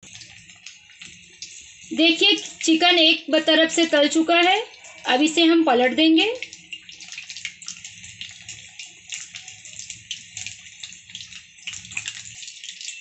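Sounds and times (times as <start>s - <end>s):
food deep-frying in oil: 0.0s - 13.0s
oil crackles and pops: 6.3s - 13.0s.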